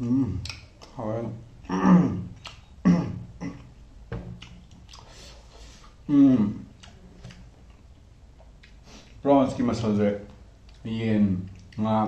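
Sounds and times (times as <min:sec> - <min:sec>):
wet mouth eating noises: 0:00.0 - 0:01.0, 0:01.6 - 0:02.8, 0:04.4 - 0:09.2
wordless vocal sounds: 0:05.0 - 0:07.0.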